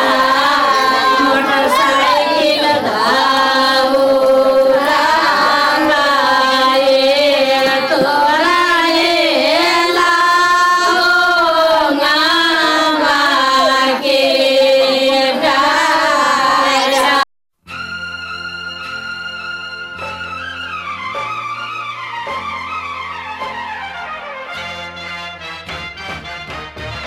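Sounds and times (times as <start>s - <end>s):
woman singing into microphone: 0.0s - 17.2s.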